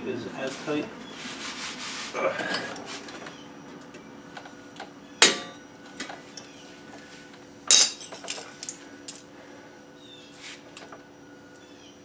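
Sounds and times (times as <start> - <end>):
metallic snap: 5.2 - 5.6
tools clinking on metal springs: 7.7 - 9.2.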